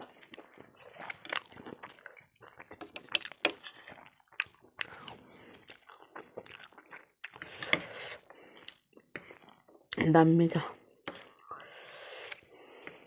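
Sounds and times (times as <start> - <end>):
close-miked chewing with wet smacks: 0.0 - 7.5.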